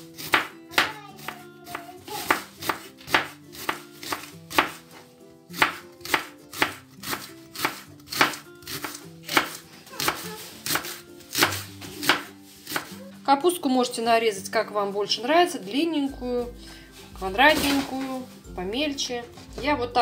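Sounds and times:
quiet background music: 0.0 - 20.0
knife cutting on wooden board: 0.2 - 4.9, 5.6 - 13.0.

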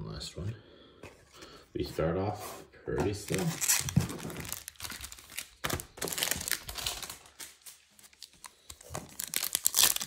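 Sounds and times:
foil wrapper crinkling and tearing: 3.4 - 10.0.

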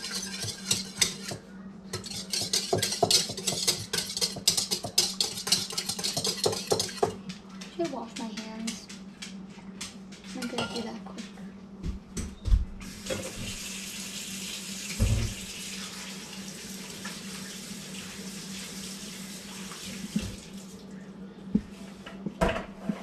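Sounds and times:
water running from a tap: 12.8 - 20.9.

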